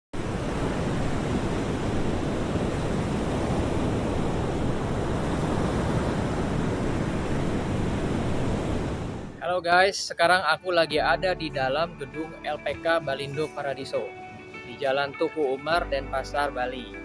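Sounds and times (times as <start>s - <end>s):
ocean waves breaking: 0.2s - 9.6s.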